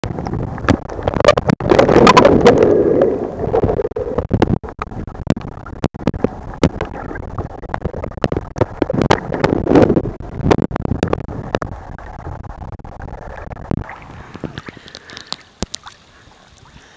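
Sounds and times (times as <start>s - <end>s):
small waves sloshing: 13.8s - 16.9s.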